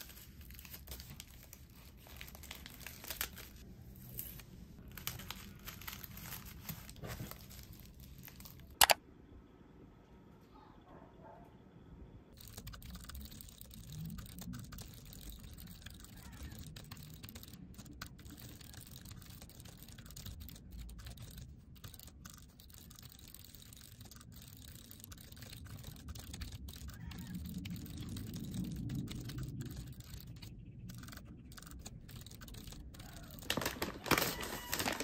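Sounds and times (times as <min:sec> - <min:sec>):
typing on computer keyboard: 0:08.8 - 0:09.0, 0:12.4 - 0:35.0.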